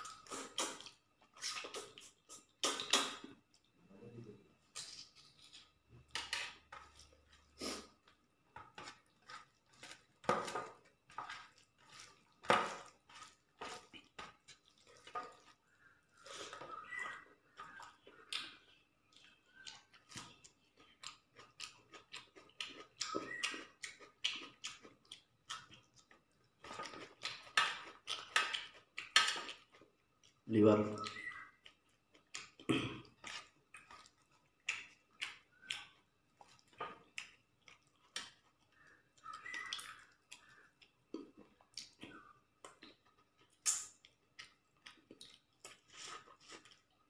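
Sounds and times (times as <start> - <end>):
man chewing food: 0.0 - 3.9, 4.5 - 47.0
wet mouth smacks and clicks: 2.6 - 3.3, 43.6 - 44.5.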